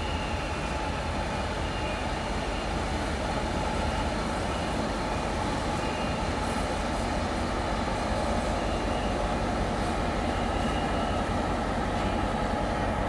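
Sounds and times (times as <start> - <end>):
locomotive engine low rumble: 0.0 - 13.0.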